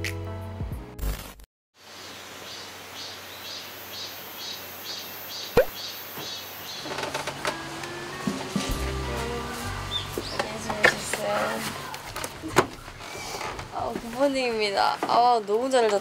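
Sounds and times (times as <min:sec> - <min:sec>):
insects chirping: 0:01.8 - 0:06.9.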